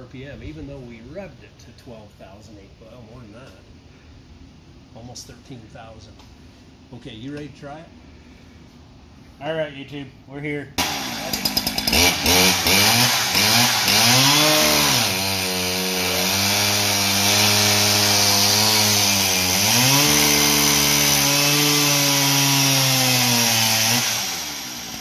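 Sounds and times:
chainsaw revving: 10.8s - 25.0s.

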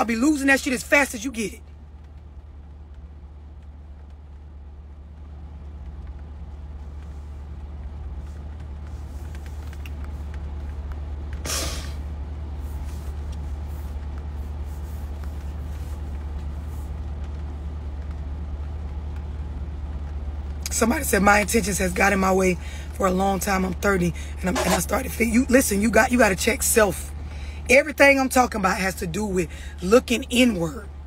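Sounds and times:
vehicle rumble inside cabin: 0.0s - 31.0s
short hiss: 11.4s - 12.0s.

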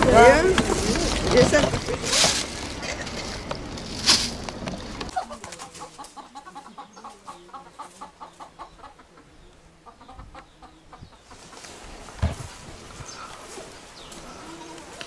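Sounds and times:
hen clucking: 4.5s - 15.0s.

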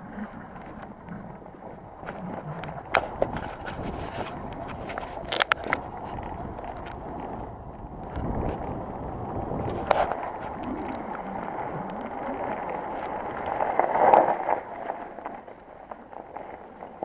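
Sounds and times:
bike tyres on gravel: 0.0s - 17.0s
wind on microphone: 0.0s - 17.0s
bike rattling clicks: 2.9s - 7.0s.

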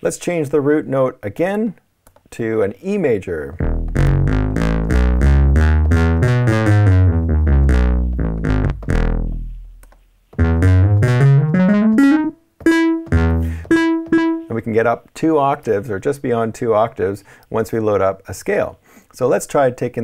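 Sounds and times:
synthesizer scale notes: 3.6s - 9.7s, 10.4s - 14.5s.

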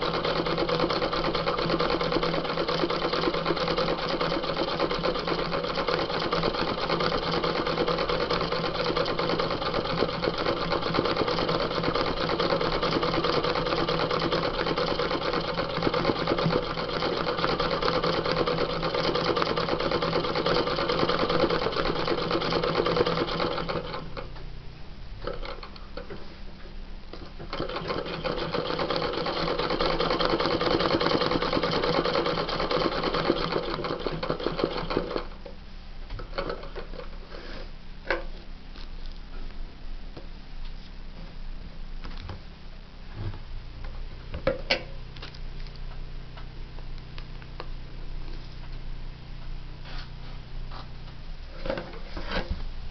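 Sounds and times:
sewing machine stitching: 0.0s - 24.3s, 27.4s - 35.4s.

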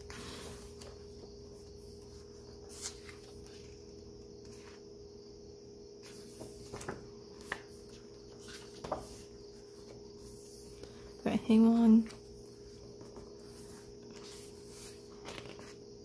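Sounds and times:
pages rustling and tapping: 0.0s - 4.8s, 6.0s - 11.0s, 12.0s - 15.8s
steady low hum: 0.0s - 16.0s
page turning: 2.0s - 4.8s, 6.0s - 10.9s, 12.0s - 15.8s.

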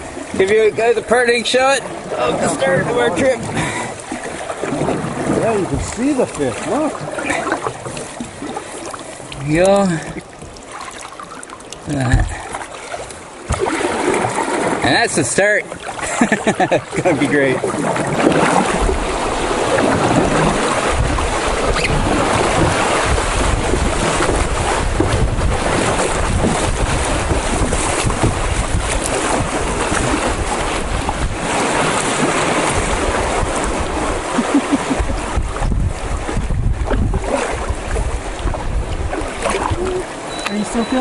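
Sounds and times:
river current rushing: 0.0s - 41.0s
wind buffeting microphone: 1.8s - 8.7s, 15.8s - 41.0s.

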